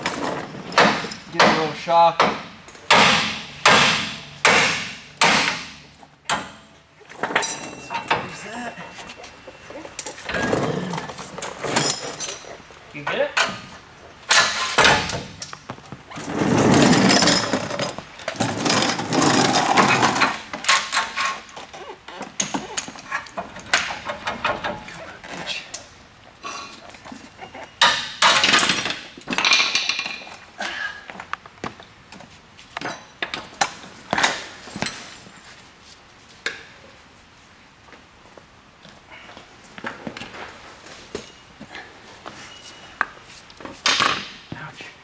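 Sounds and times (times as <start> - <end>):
metal clanks and knocks: 0.0 - 21.7, 22.3 - 24.9, 27.4 - 30.4.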